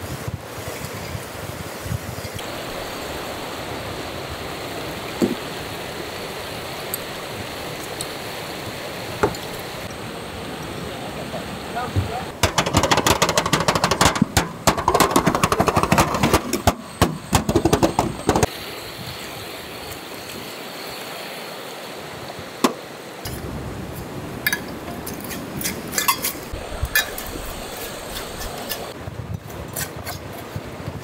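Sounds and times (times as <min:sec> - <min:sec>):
glass jars clinking: 0:24.5 - 0:27.3.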